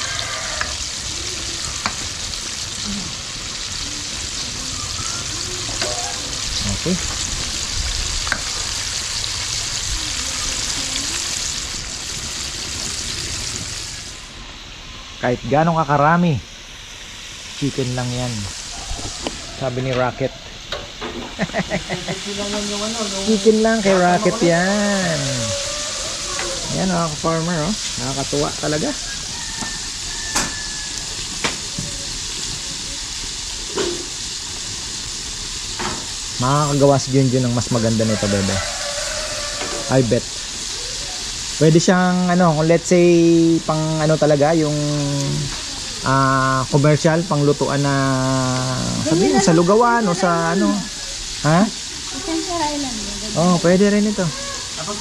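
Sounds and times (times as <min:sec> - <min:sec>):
chicken deep-frying in oil: 0:00.0 - 0:55.0.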